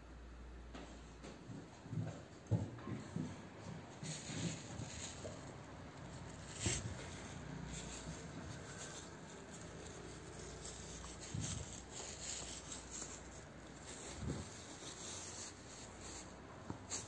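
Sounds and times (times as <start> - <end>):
hand rubbing puppy fur: 3.8 - 17.0.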